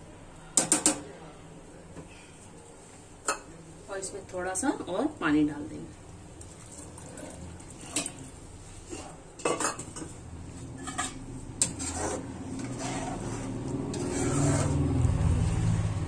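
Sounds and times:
metal ladle scraping pot: 8.9 - 14.9.

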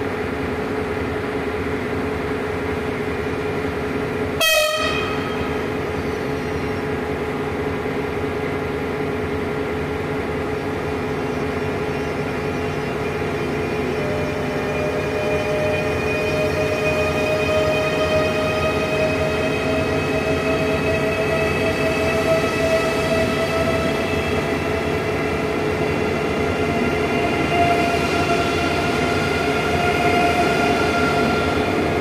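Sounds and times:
high-speed train humming: 0.0 - 32.0
train horn blast: 4.4 - 5.5.

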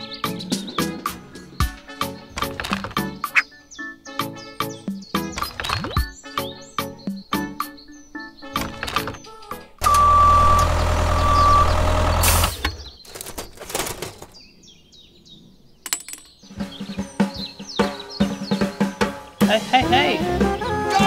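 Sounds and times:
music: 0.0 - 9.8, 16.5 - 21.0
birds chirping: 0.0 - 21.0
high steady tone: 9.8 - 12.4
tractor engine: 9.8 - 14.3.

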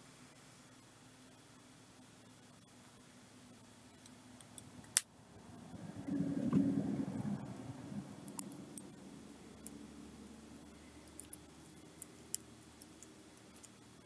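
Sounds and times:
handling noise of beading materials: 5.7 - 14.0
beads clicking: 10.6 - 14.0.

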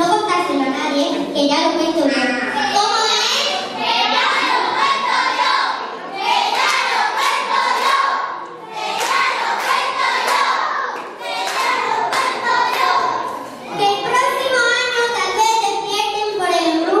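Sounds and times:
children singing together: 3.3 - 14.1.

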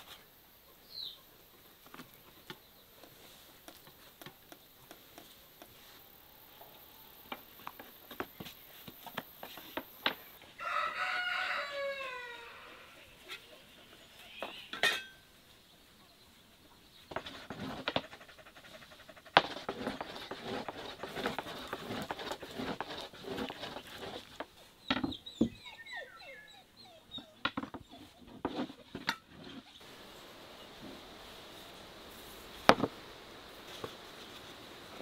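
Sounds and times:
chirping bird calls: 24.8 - 28.3
steady hiss: 29.8 - 35.0.

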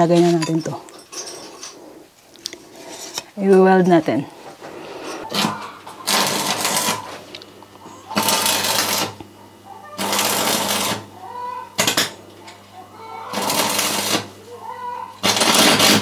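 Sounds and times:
steady low hum: 0.0 - 16.0
arc welding crackling sizzle: 4.4 - 16.0.

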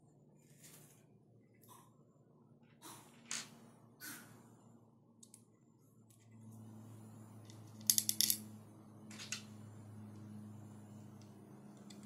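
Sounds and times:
low steady hum: 0.0 - 12.0
small metal parts clicking: 7.4 - 8.4, 11.1 - 12.0.

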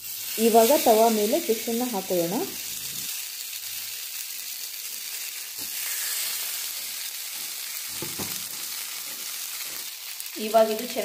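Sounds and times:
fish sizzling in hot oil: 0.0 - 11.0
light knocks on pan: 8.0 - 8.4.

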